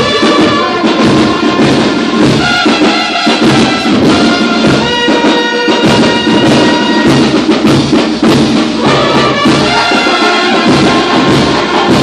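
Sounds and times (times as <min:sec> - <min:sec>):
brass band playing: 0:00.0 - 0:12.0
steady drum beat: 0:00.0 - 0:12.0
tuba-like bass horn: 0:02.4 - 0:07.2, 0:08.8 - 0:12.0.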